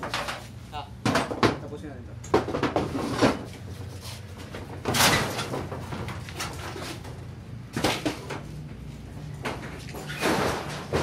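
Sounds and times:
scraping clatter: 9.4 - 11.0.

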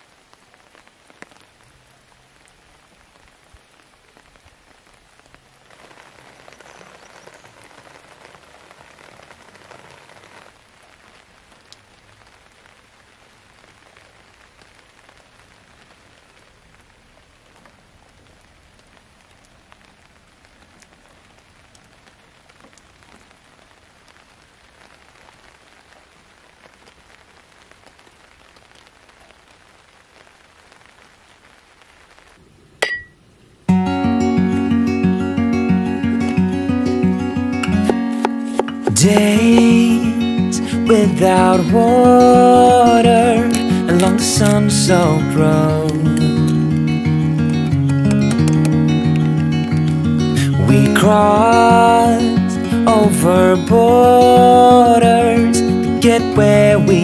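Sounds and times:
steady rain falling: 0.0 - 57.0
metallic ting: 32.8 - 33.2
strummed acoustic guitar music: 33.7 - 57.0.

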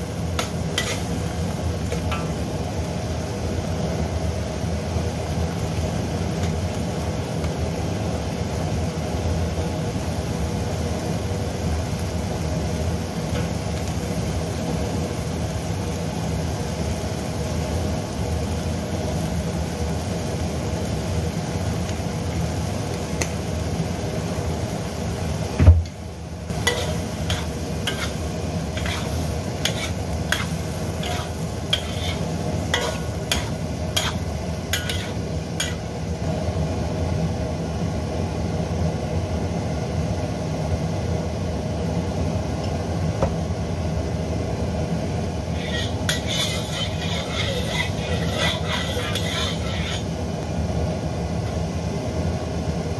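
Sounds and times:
meat sizzling in a wok: 0.0 - 52.9
metal spatula scraping a wok: 0.3 - 2.5, 26.5 - 36.0, 45.5 - 50.1.

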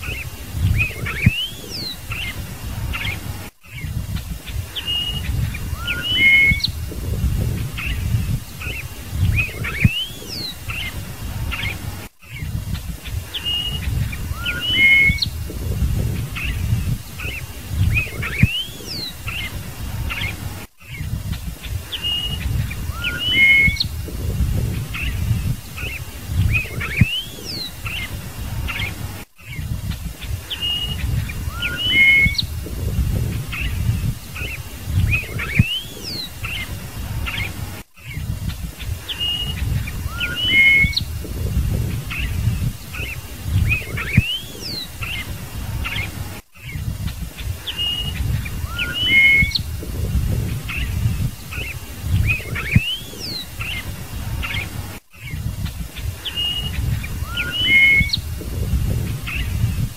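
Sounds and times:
bird singing whistled notes: 0.0 - 47.0, 47.6 - 55.4, 56.2 - 59.8
low rumble: 32.4 - 34.2, 41.0 - 43.9, 49.6 - 51.4.

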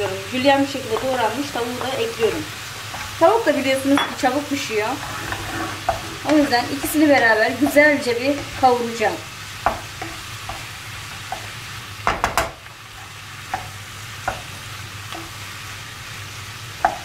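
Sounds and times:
food sizzling in a pan: 0.0 - 17.0
wooden spatula scraping a pan: 4.1 - 11.5.

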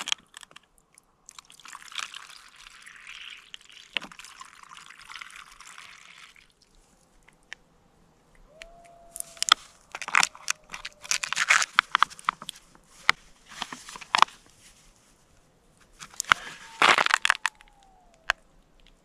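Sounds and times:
faint coyote howl: 8.4 - 11.9, 16.2 - 19.0
plastic pouch crinkling: 9.2 - 12.5, 16.0 - 18.3.

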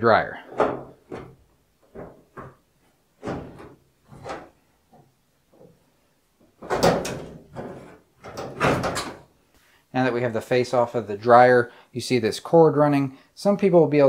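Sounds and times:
metal panel clunking rattles: 6.6 - 9.3.

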